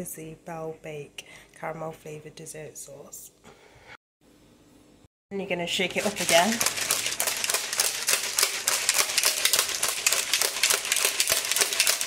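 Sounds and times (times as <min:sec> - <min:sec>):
shaker cup being shaken: 0:05.7 - 0:12.0.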